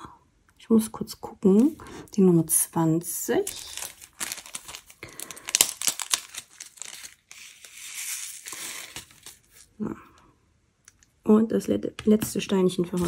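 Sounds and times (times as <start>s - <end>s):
plastic bag crinkling: 3.3s - 9.8s.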